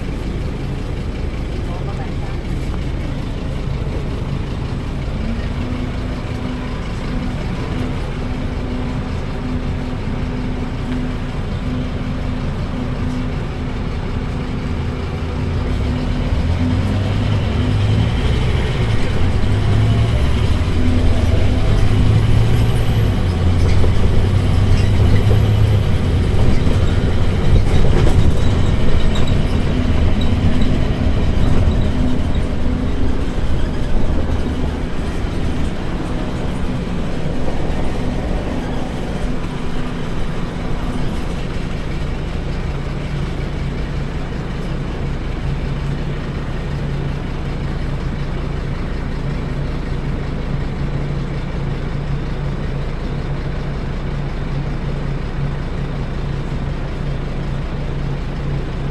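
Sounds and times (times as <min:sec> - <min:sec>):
bus diesel engine humming: 0:00.0 - 0:58.9.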